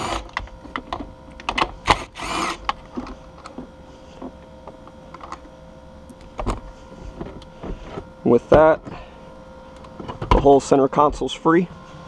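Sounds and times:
cordless drill spinning: 0.0 - 0.4, 1.8 - 2.7.

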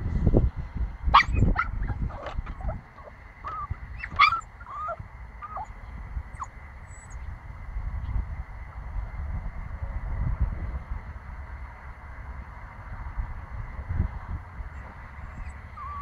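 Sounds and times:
puppy whiny yelps: 1.1 - 7.2, 14.8 - 16.0
puppy yipping and barking: 1.1 - 7.2, 14.8 - 16.0.

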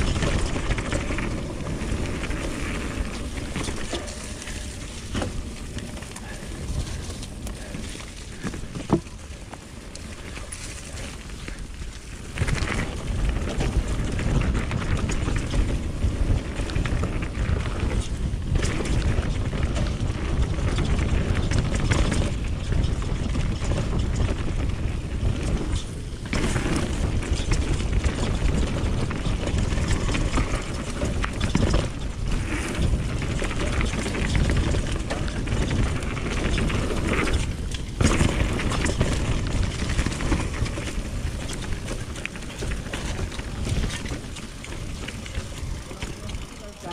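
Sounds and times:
wind on microphone: 0.0 - 9.1
bike tyres rumbling on dirt: 0.0 - 46.9.

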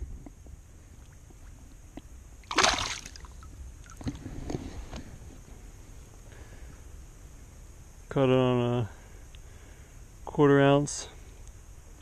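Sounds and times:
fish splashing: 2.4 - 4.0.

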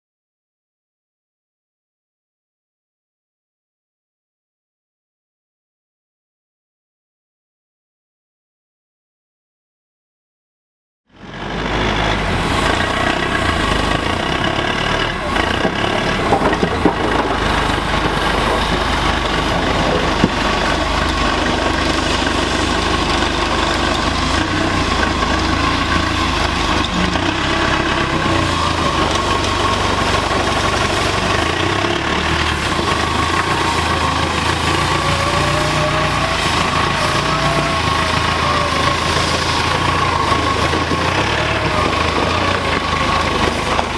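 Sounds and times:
diesel engine running: 11.1 - 43.9.

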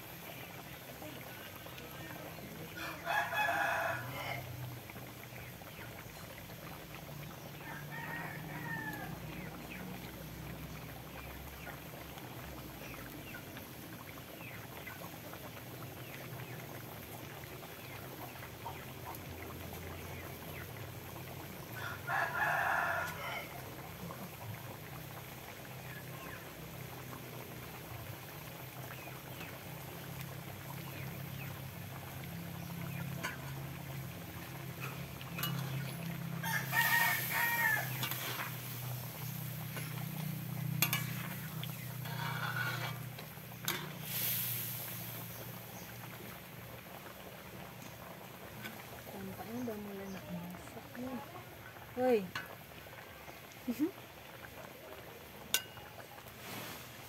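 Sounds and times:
rooster crowing: 2.8 - 4.5, 7.6 - 9.3, 21.8 - 23.7, 35.4 - 38.6.

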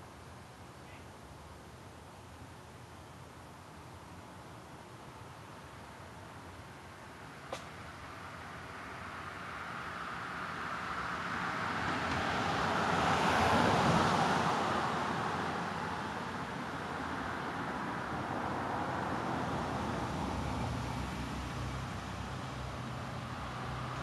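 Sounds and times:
distant traffic: 0.0 - 24.0
car passing by: 9.0 - 24.0.

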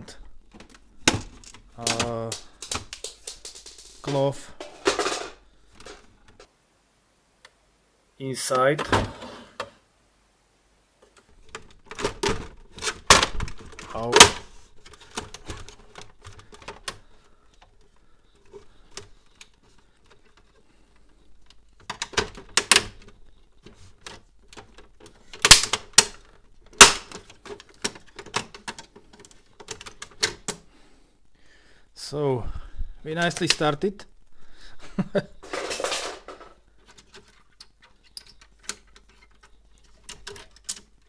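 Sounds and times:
plastic printer housing clicking and rattling: 11.4 - 20.6, 21.4 - 30.6, 35.5 - 41.0.

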